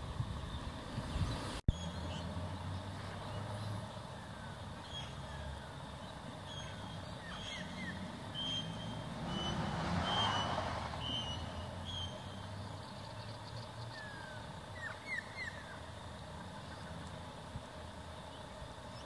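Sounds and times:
distant road traffic: 0:00.0 - 0:19.0
high bird chirps: 0:06.4 - 0:12.4
vehicle passing: 0:07.6 - 0:12.9.

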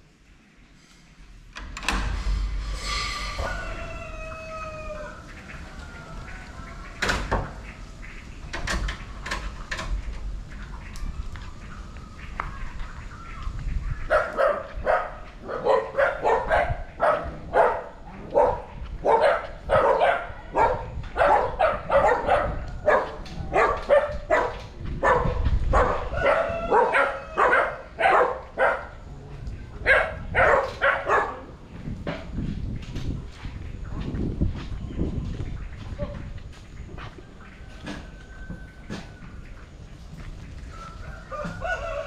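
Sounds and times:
dog barking: 0:14.1 - 0:29.0, 0:29.8 - 0:31.5.

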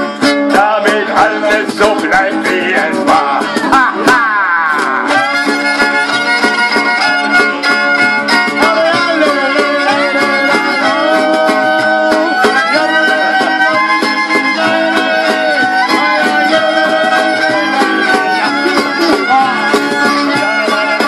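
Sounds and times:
strummed acoustic guitars: 0:00.0 - 0:21.0
fiddle melody with slides: 0:04.9 - 0:21.0.

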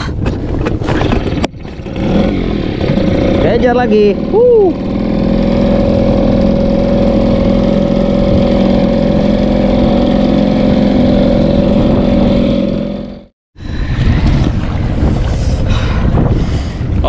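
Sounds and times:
wind: 0:00.0 - 0:17.0
outboard motor running: 0:00.1 - 0:13.3
water splashing: 0:00.6 - 0:13.0.

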